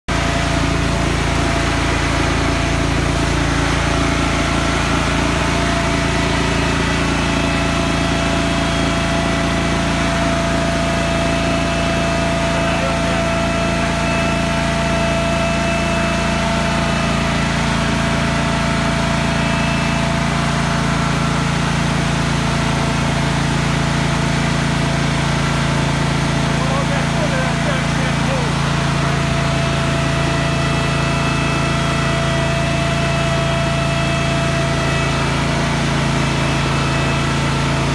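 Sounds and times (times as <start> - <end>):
forklift engine idling: 0.1 - 37.9.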